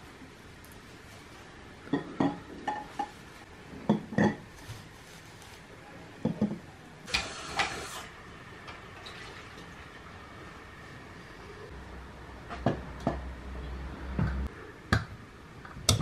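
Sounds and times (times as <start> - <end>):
rustling scrape: 4.5 - 5.8.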